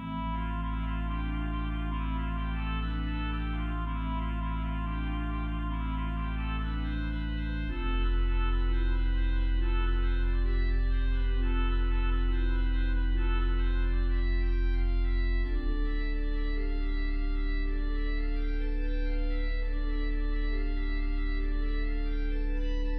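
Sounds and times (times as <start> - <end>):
deep organ pedal bass: 0.0 - 22.9
organ playing sustained chords: 0.0 - 22.9.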